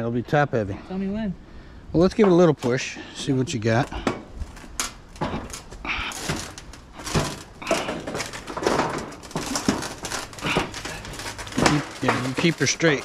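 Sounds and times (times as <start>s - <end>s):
metal scraping and clanking: 3.7s - 13.0s.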